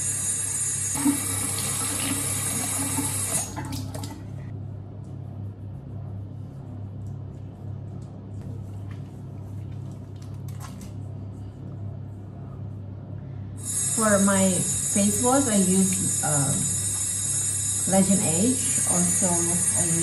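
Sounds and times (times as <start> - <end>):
steady low hum: 0.0 - 20.0
tap water running into sink: 1.0 - 4.2.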